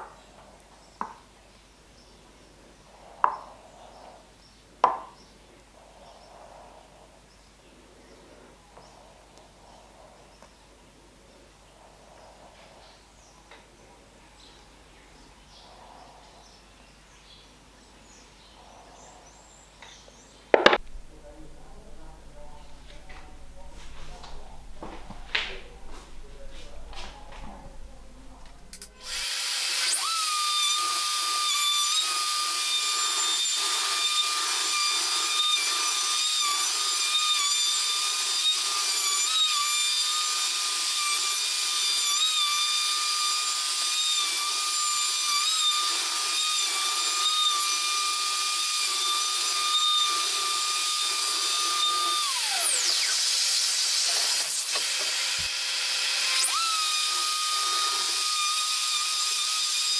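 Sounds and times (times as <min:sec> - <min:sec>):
router high whine: 0:20.7 - 0:59.9.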